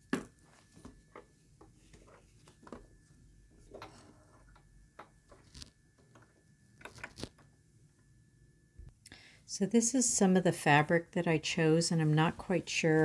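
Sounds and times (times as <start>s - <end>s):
faint steady high tone: 5.7s - 9.6s.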